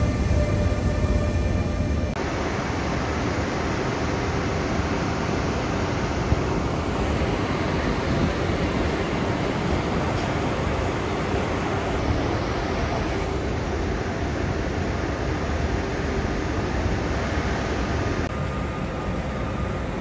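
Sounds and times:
steady rushing ambience: 0:00.0 - 0:20.0.

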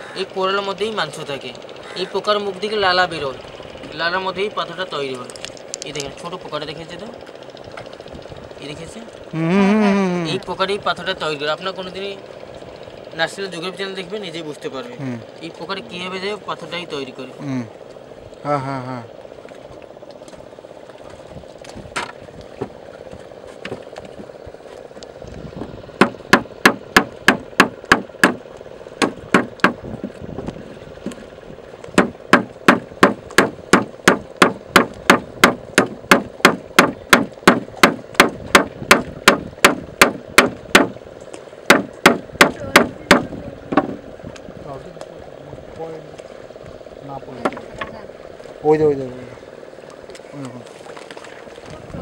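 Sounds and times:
oyster shells knocked on wooden plank: 0:26.0 - 0:28.4, 0:29.0 - 0:29.8, 0:32.0 - 0:41.0, 0:41.7 - 0:44.0.

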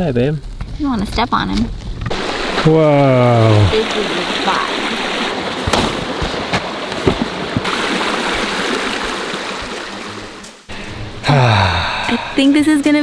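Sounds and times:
river rushing over rocks: 0:02.1 - 0:10.4.

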